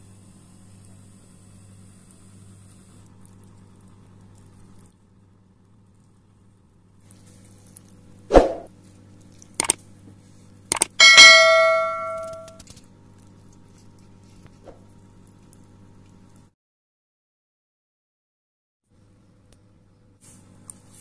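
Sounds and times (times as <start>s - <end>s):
steady low hum: 0.0s - 16.5s
bright bell ding: 11.0s - 12.6s.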